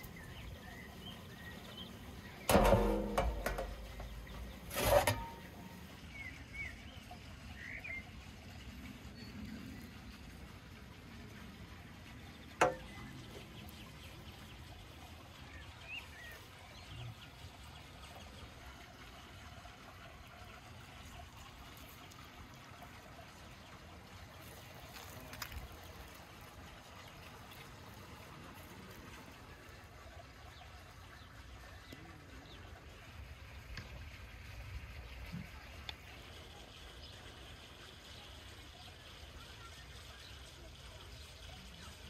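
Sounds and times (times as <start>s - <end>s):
soft knocks: 2.5s - 5.4s.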